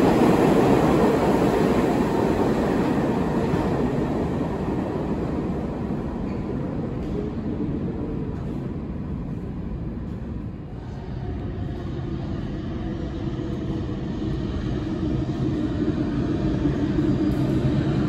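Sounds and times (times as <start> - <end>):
subway train rumble: 0.0 - 18.0.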